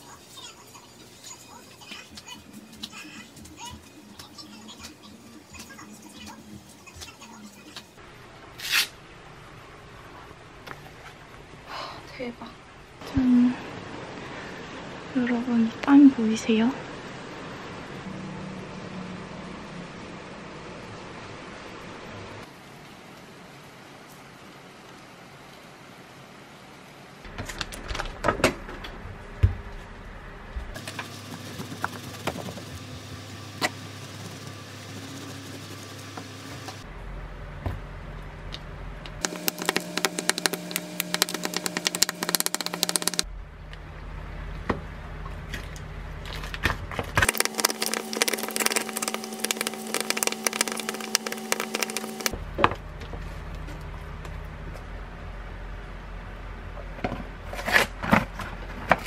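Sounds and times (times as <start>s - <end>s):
steady low hum: 32.8s - 56.8s
wooden spatula mixing yogurt: 47.3s - 52.3s.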